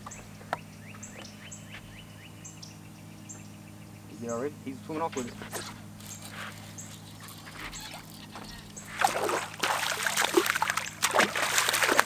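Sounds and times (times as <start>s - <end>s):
fish splashing at water surface: 8.9s - 12.0s.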